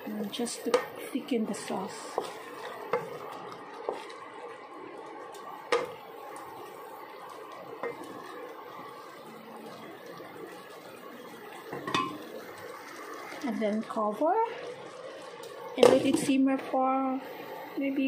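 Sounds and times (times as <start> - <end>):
sauce simmering: 0.0 - 18.0
wet squishing stir: 1.5 - 13.8.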